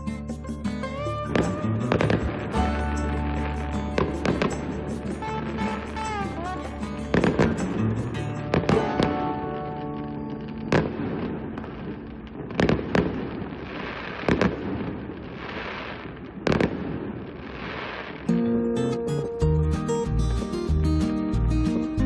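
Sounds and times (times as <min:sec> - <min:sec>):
fireworks crackling: 0:00.0 - 0:18.5
fireworks bangs: 0:01.0 - 0:18.4.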